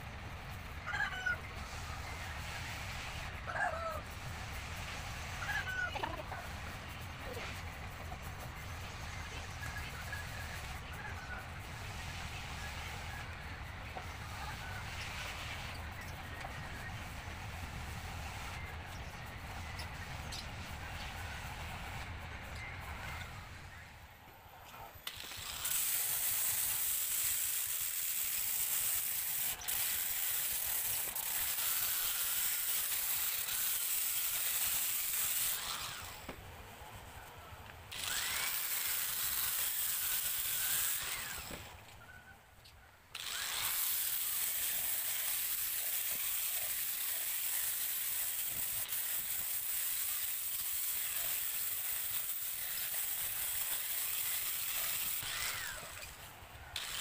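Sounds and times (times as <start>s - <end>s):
power sander running: 37.9s - 41.7s, 43.2s - 56.2s, 56.8s - 57.0s.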